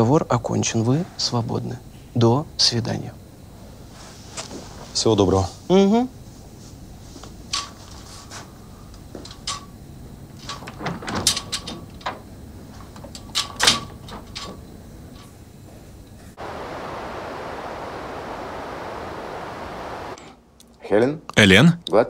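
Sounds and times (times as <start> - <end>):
steady hiss: 12.3 - 20.5.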